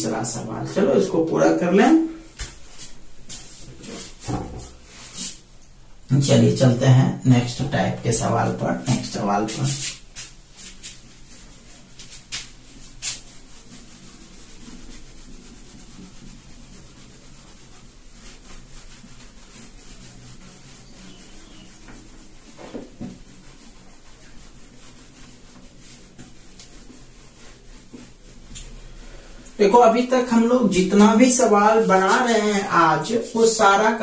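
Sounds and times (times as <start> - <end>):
hand rubbing across whiteboard: 0.0 - 5.5, 7.4 - 34.0.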